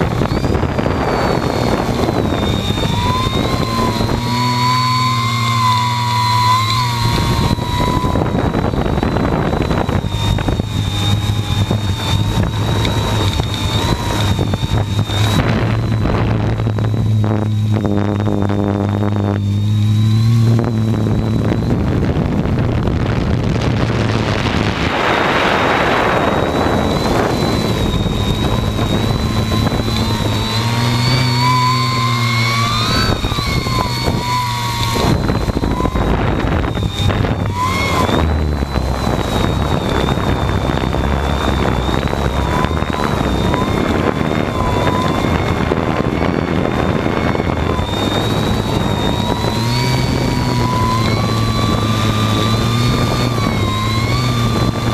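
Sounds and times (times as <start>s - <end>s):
drone motors whining: 0.0s - 54.9s
steady rushing noise: 0.0s - 54.9s.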